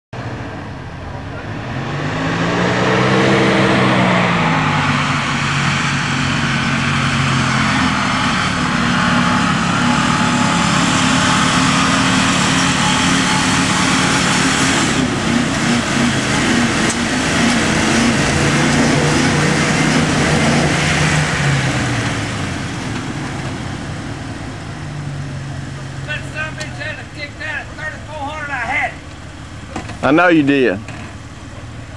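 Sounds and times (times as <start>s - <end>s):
engine revving hard: 1.3s - 23.4s.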